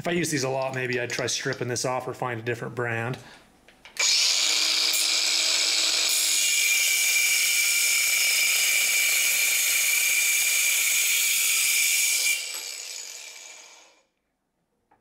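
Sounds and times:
angle grinder cutting metal: 4.0 - 14.0.

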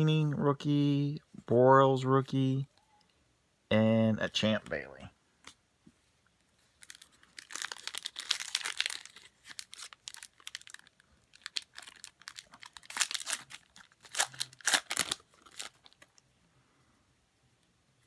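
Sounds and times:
foil wrapper crinkling and tearing: 6.7 - 16.2.

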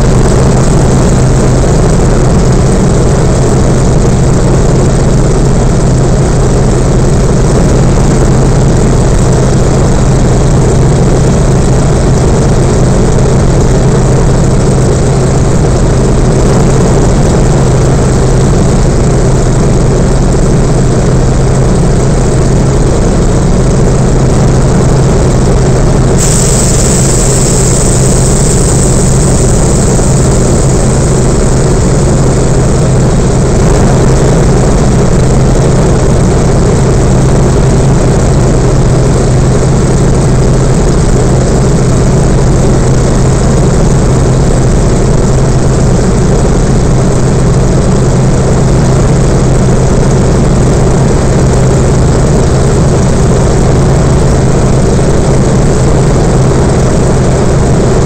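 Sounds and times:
radial engine and propeller drone: 0.0 - 58.0
high hiss: 26.2 - 32.0.

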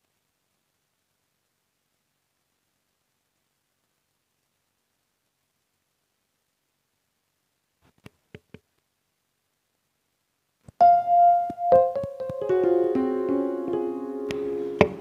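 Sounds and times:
electronic keyboard melody: 10.8 - 15.0.

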